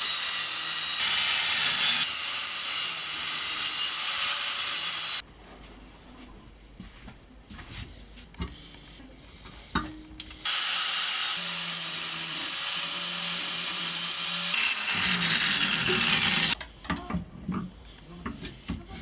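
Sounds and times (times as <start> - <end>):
angle grinder cutting steel: 0.0 - 5.2, 10.4 - 16.6.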